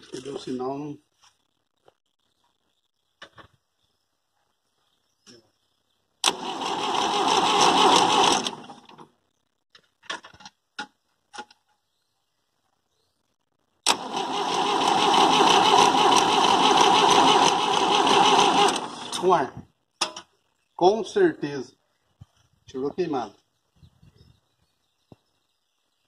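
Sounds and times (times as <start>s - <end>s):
diesel engine cranking: 6.2s - 9.0s, 13.8s - 19.4s.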